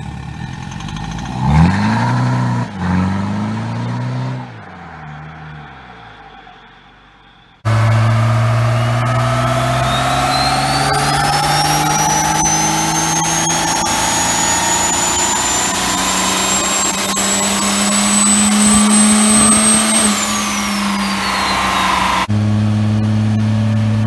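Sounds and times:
diesel engine revving: 0.0s - 24.0s
high whine: 6.2s - 24.0s.

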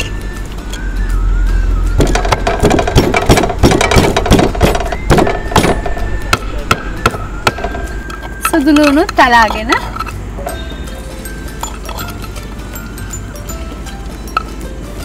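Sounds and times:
wooden pestle pounding in mortar: 2.0s - 9.8s.

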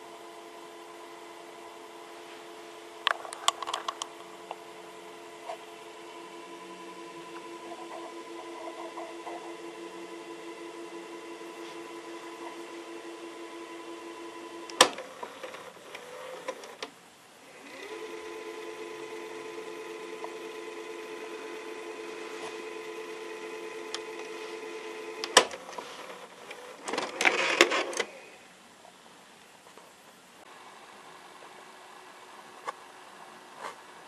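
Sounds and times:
tape mechanism motor whine: 0.0s - 16.9s, 17.5s - 28.2s
cassette ejecting clatter: 3.1s - 4.2s, 14.7s - 16.9s, 25.2s - 25.8s, 26.4s - 28.1s.

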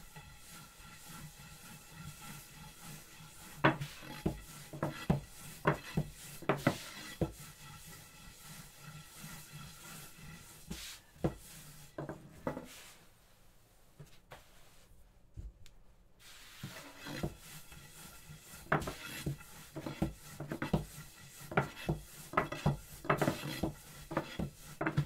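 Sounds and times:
rolling pin rubbing on dough: 0.0s - 13.0s, 16.2s - 25.0s
rolling pin knocking on wooden board: 3.6s - 7.4s, 18.6s - 25.0s.

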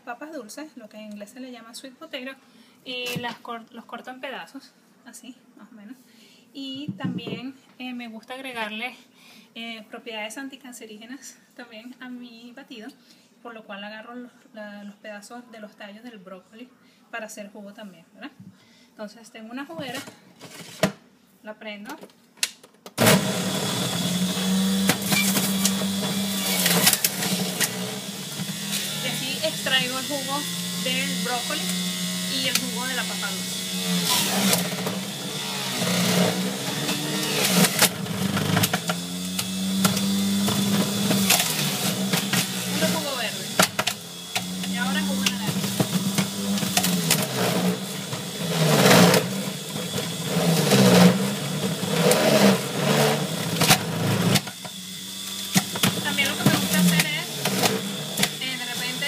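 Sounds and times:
electric juicer motor humming: 23.0s - 59.0s
stalks knocking in juicer chute: 35.7s - 42.7s, 43.6s - 48.2s, 53.6s - 58.4s.

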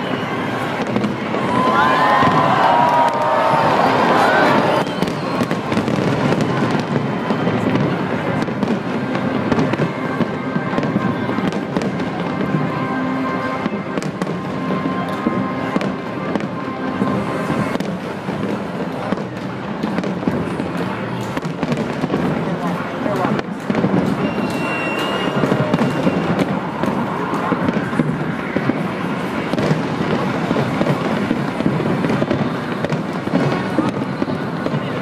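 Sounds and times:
fireworks bangs and crackles: 0.0s - 35.0s.

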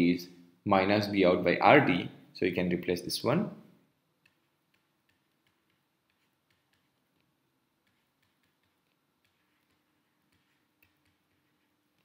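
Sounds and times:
stylus tapping on tablet screen: 4.2s - 12.0s.

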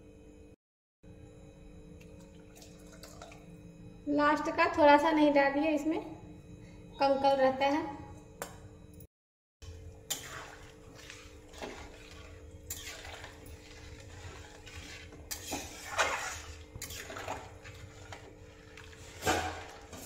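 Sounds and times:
liquid sloshing: 2.2s - 3.5s, 10.0s - 20.0s
metal spatula scraping pan: 10.1s - 20.0s.

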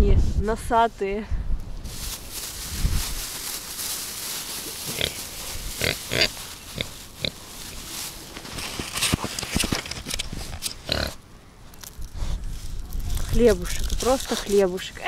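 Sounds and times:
wind on microphone: 0.0s - 3.3s, 12.0s - 14.6s
pigs grunting and snorting: 4.8s - 7.4s, 10.5s - 11.2s.

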